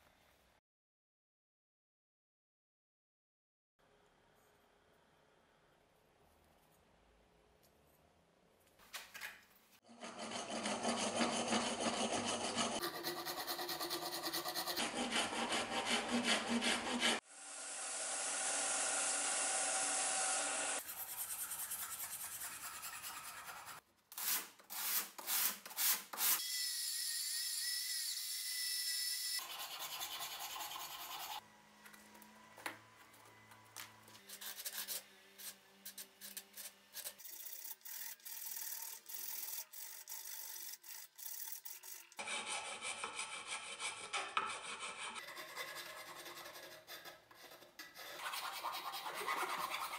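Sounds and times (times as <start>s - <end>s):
file rubbing wood: 9.9s - 17.2s, 20.7s - 23.8s, 29.4s - 31.4s, 34.2s - 49.9s
rasp scraping wood: 9.9s - 17.2s, 42.2s - 49.9s.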